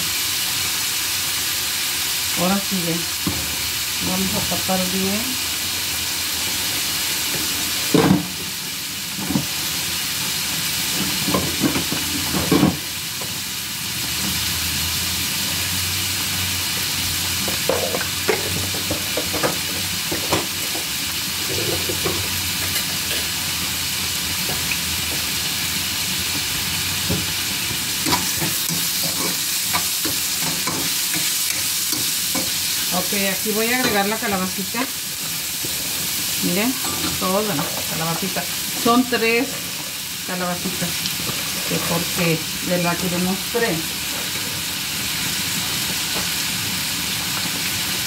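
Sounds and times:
vegetables sizzling in a skillet: 0:00.0 - 0:48.0.

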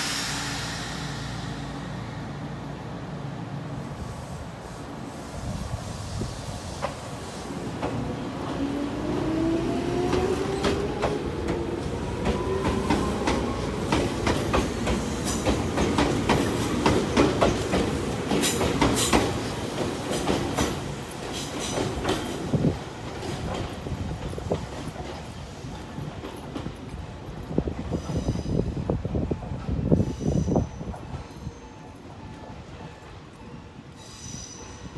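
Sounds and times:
train wheels clacking over joints: 0:10.0 - 0:28.4.

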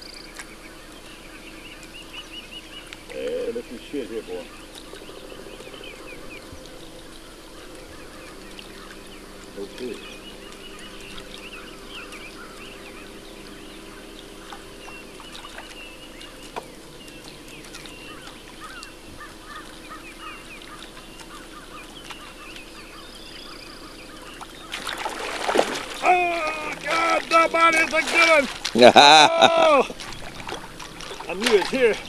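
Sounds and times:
bird calls: 0:00.0 - 0:32.0
waterfowl honking: 0:01.3 - 0:32.0
loud water splashing: 0:24.5 - 0:32.0.

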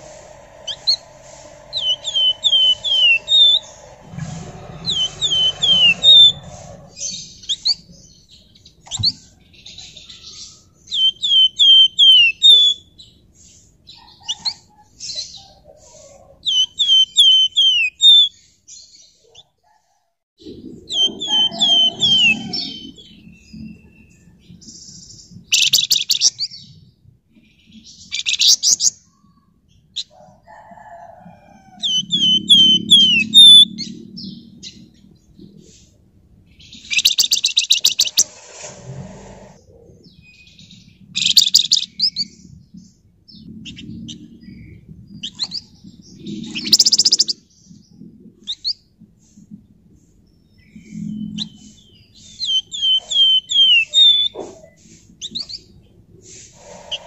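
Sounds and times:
songbird whistling: 0:00.0 - 0:03.7, 0:04.3 - 0:07.8, 0:10.1 - 0:12.9, 0:16.4 - 0:18.4, 0:20.9 - 0:24.2, 0:25.5 - 0:26.4, 0:31.8 - 0:33.8, 0:36.8 - 0:38.3, 0:46.5 - 0:47.4, 0:51.4 - 0:54.4
harsh rasping bursts: 0:00.0 - 0:07.2, 0:37.8 - 0:39.6.

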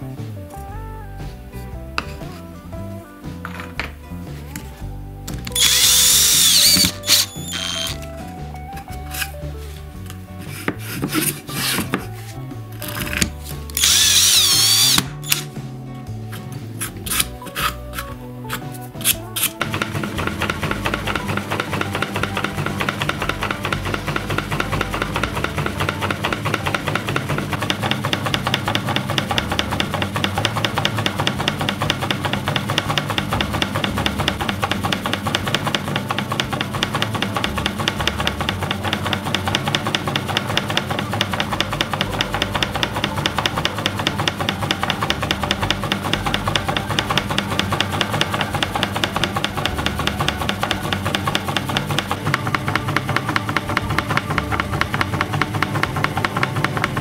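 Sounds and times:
background music: 0:00.0 - 0:57.0
wooden crank clattering rhythmically: 0:05.4 - 0:08.2, 0:13.8 - 0:15.4, 0:19.4 - 0:57.0.

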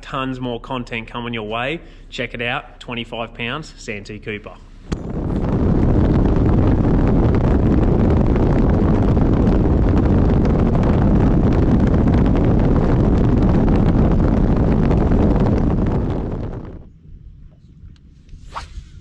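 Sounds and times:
wind buffeting microphone: 0:04.7 - 0:19.0.

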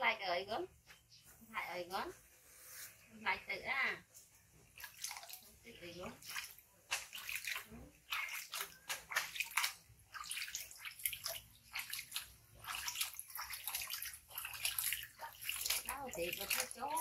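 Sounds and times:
water splashing in plastic tub: 0:04.6 - 0:17.0.

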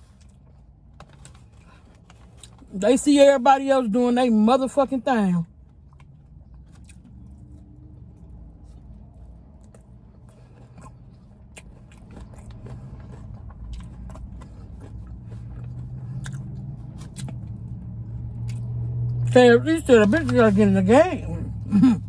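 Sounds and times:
low steady hum: 0:00.0 - 0:22.0
person chewing chicken wings: 0:05.7 - 0:18.8.

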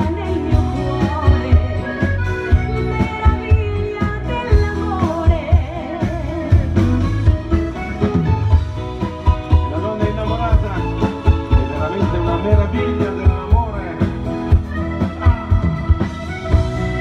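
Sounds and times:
woman singing: 0:00.0 - 0:07.1
live dance band playing: 0:00.0 - 0:17.0.

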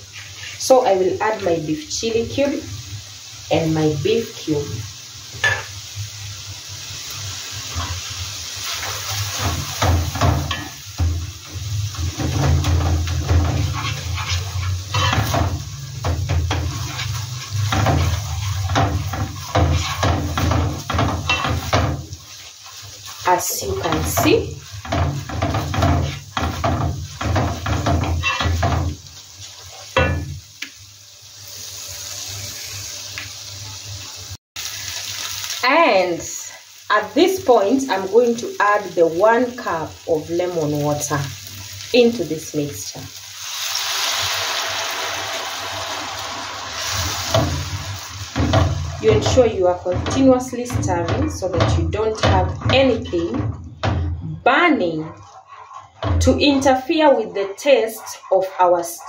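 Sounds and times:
wooden spatula scraping a pan: 0:00.0 - 0:00.9, 0:07.6 - 0:30.4, 0:45.8 - 0:59.0
sauce sizzling in a pan: 0:00.0 - 0:54.0, 0:54.7 - 0:59.0
spatula knocking against pan: 0:48.4 - 0:54.2.

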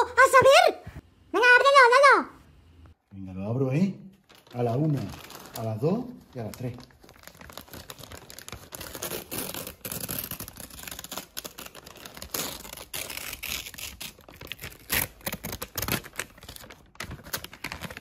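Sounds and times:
wrapping paper ripping and crinkling: 0:04.1 - 0:18.0.

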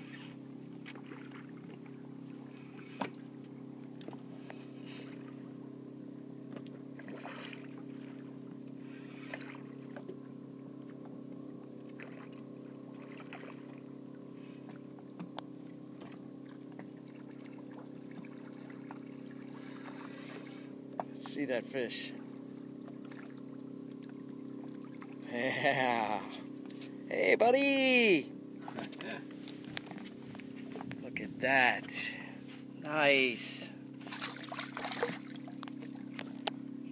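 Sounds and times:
boat motor humming: 0:00.0 - 0:36.9
fish splashing at surface: 0:34.0 - 0:36.0.

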